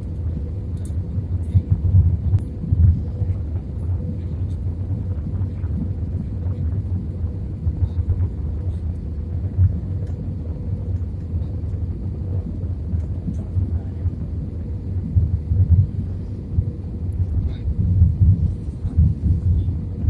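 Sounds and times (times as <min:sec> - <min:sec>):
aircraft engine and airflow rumble: 0:00.0 - 0:20.0
faint steady hum: 0:00.0 - 0:20.0.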